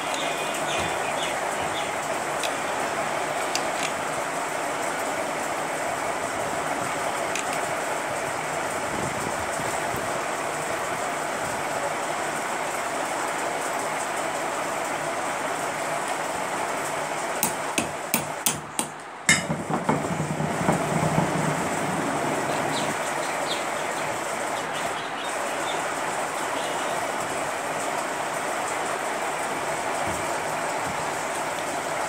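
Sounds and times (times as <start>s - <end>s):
steady noisy hiss: 0.0s - 32.0s
hard clicks of handled parts: 3.5s - 4.0s.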